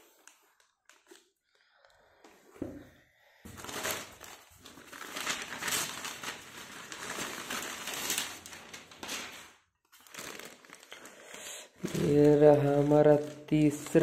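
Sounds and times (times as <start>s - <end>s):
paper packaging crinkling: 3.5s - 14.0s.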